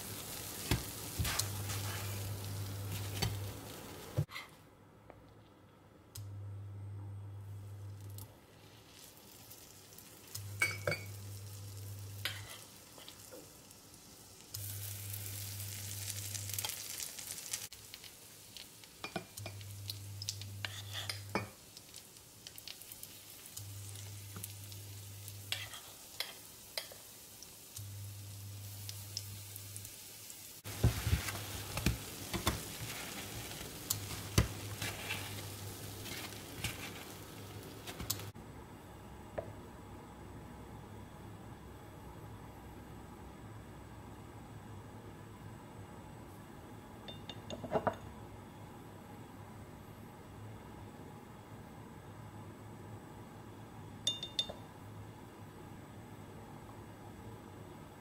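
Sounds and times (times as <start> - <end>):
batter sizzling in hot oil: 0.0 - 4.3, 8.5 - 38.4
low hum from hob: 0.0 - 58.0.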